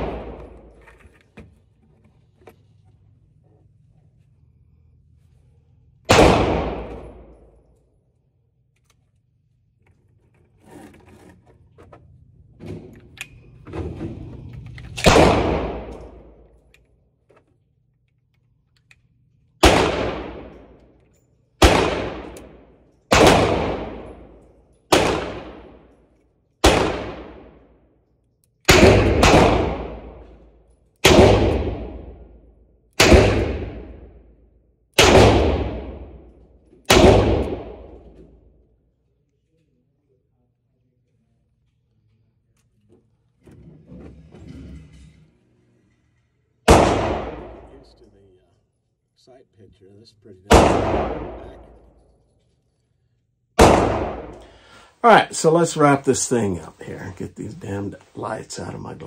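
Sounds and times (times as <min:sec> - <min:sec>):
gunshots echoing indoors: 0:00.0 - 0:00.9, 0:05.2 - 0:08.2, 0:12.9 - 0:17.0, 0:18.8 - 0:38.8, 0:46.6 - 0:48.2, 0:50.5 - 0:52.8, 0:53.4 - 0:55.2.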